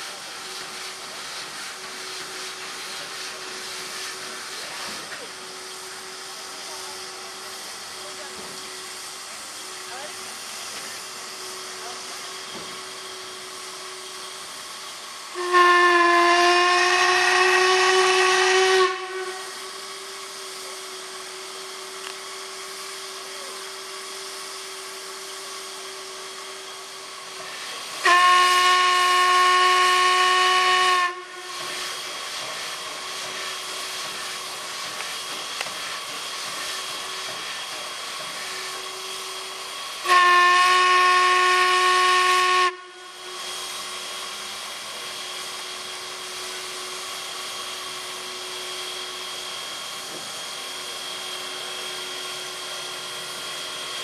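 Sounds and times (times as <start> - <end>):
steam hissing: 0.0 - 54.0
steam whistle blasts: 15.1 - 20.6, 25.3 - 32.1, 38.5 - 44.5.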